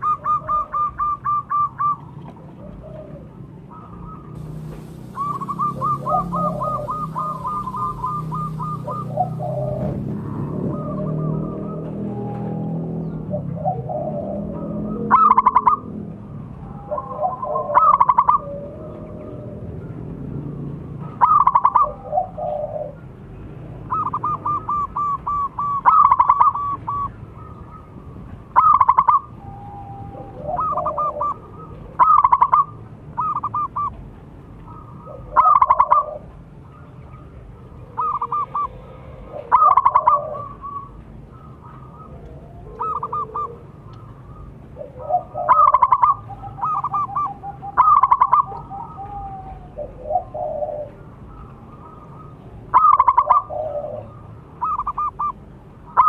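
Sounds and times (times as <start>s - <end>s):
dove cooing song: 0.0s - 56.0s.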